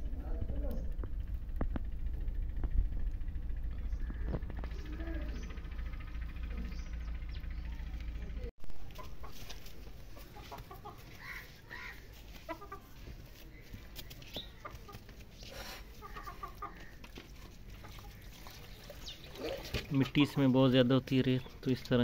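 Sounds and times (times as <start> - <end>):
steady low rumble: 0.0 - 17.7
chickens clucking: 6.5 - 20.5.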